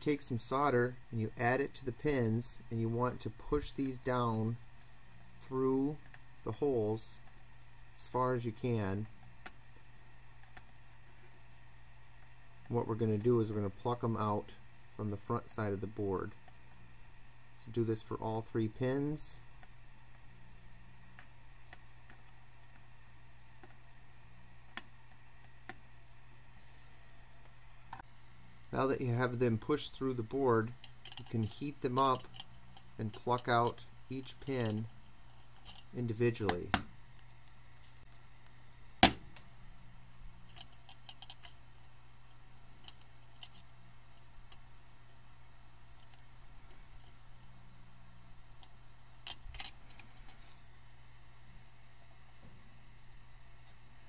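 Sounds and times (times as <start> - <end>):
steady low hum: 0.0 - 54.0
faint irregular ticks: 8.5 - 28.8, 40.4 - 44.7, 45.3 - 47.6.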